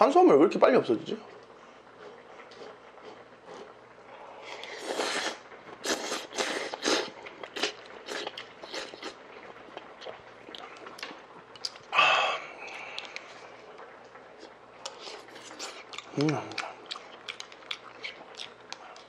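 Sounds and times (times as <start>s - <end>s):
chewing: 1.4s - 3.8s, 4.4s - 19.0s
slurping noodles and broth: 2.0s - 9.2s.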